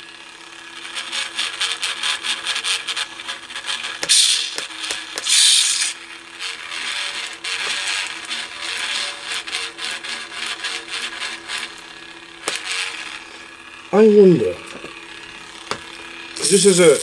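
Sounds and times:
lightsaber buzzing hum: 0:01.0 - 0:17.0
lightsaber hissing burst: 0:04.1 - 0:06.0, 0:16.3 - 0:17.0.

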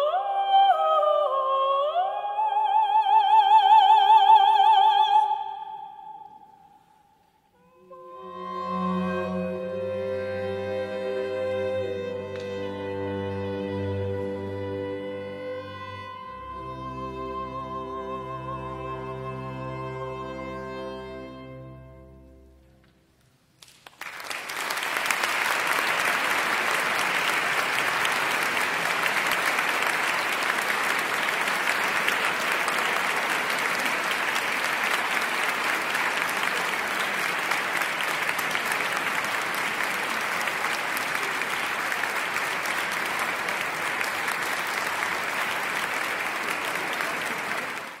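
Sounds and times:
audience applause: 0:11.9 - 0:14.6, 0:23.6 - 0:48.0.

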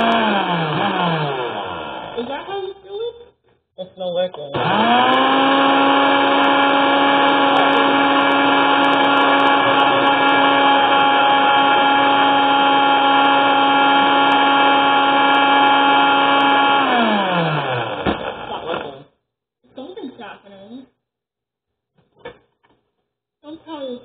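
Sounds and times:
blender motor whining: 0:00.0 - 0:02.5, 0:04.5 - 0:19.1.

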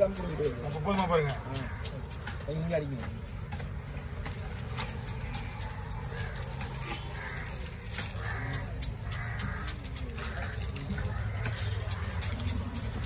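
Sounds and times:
crows cawing: 0:00.0 - 0:03.4, 0:04.7 - 0:13.0
background noise: 0:00.0 - 0:13.0.

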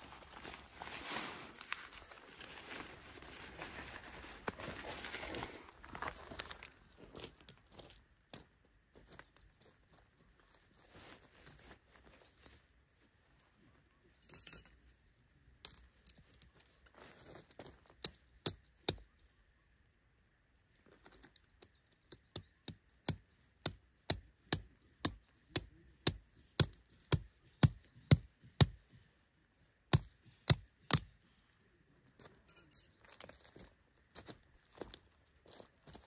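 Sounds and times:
tent peg hammered into stony ground: 0:18.0 - 0:19.1, 0:21.6 - 0:29.0, 0:29.9 - 0:31.2.

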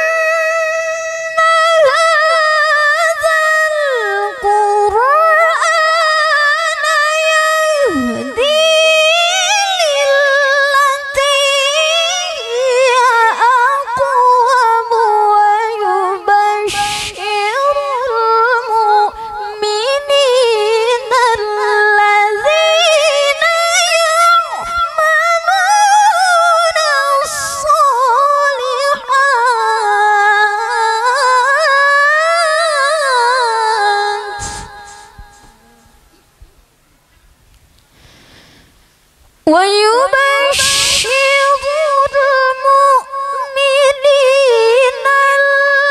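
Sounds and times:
woman reciting melodically: 0:00.0 - 0:36.4, 0:39.5 - 0:45.9.

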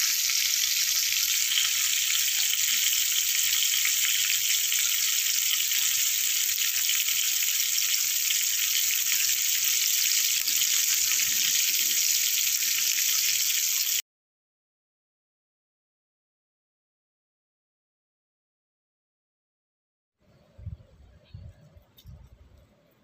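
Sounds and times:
fish sizzling in hot oil: 0:00.0 - 0:14.0.

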